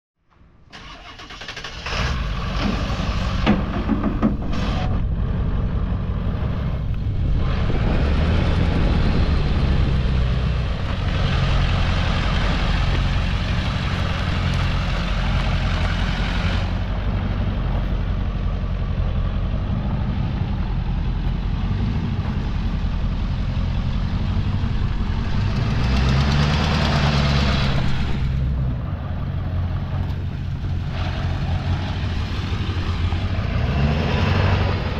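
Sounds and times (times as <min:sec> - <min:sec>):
pickup engine idling: 0:10.4 - 0:33.5.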